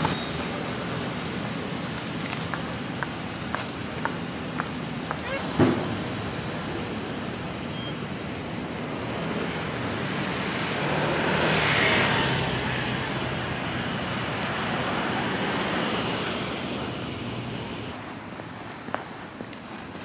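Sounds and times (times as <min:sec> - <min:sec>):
street traffic noise: 0:00.0 - 0:20.0
car driving past: 0:10.2 - 0:13.6.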